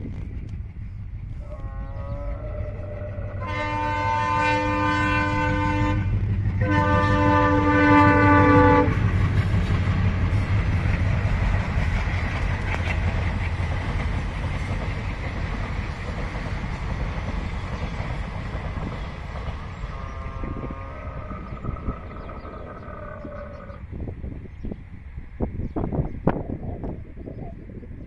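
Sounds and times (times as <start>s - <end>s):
train rumbling on track: 0.0s - 28.0s
train horn blasts: 1.4s - 9.1s, 19.9s - 22.2s.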